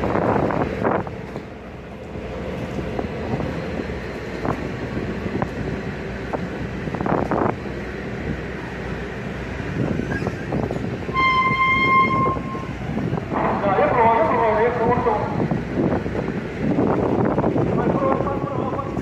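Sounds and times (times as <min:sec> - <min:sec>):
tugboat engine running: 0:00.0 - 0:19.0
wind buffeting microphone: 0:00.0 - 0:19.0
ship's horn steady tone: 0:08.1 - 0:15.5.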